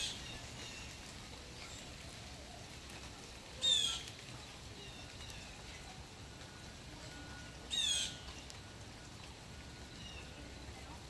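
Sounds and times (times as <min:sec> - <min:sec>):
light rain: 0:00.0 - 0:11.0
faint bird chirps: 0:03.6 - 0:11.0.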